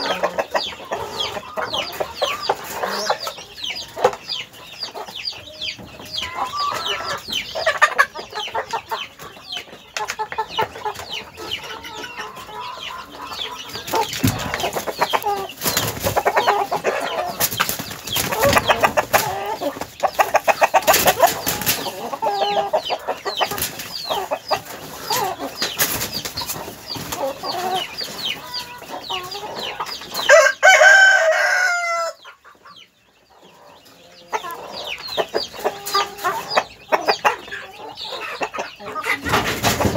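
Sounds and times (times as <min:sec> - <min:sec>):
chickens clucking: 0:00.0 - 0:39.9
loud drawn-out chicken call: 0:30.3 - 0:32.2.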